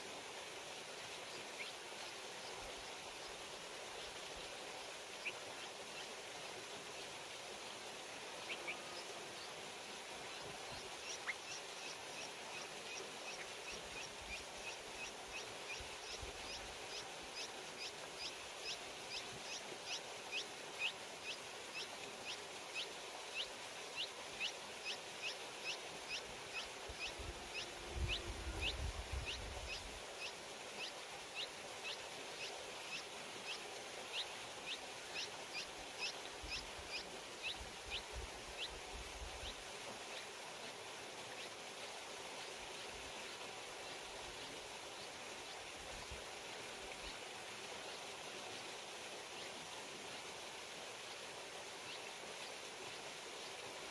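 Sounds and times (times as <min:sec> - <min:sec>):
steady hiss: 0:00.0 - 0:53.9.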